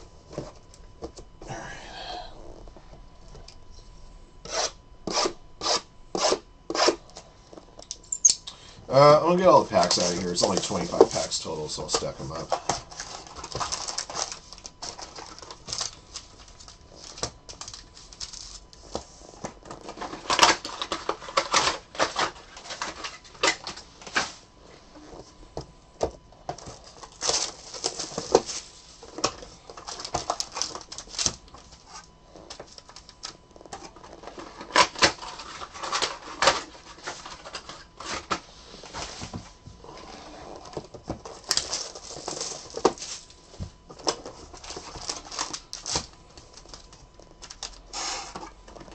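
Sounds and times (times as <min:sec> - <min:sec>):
cardboard rustling and clicking: 0:11.9 - 0:24.2.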